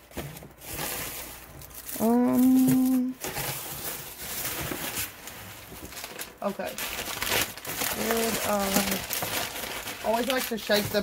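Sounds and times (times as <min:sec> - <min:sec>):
paper rustling: 0:00.0 - 0:11.0
woman humming: 0:02.0 - 0:03.2.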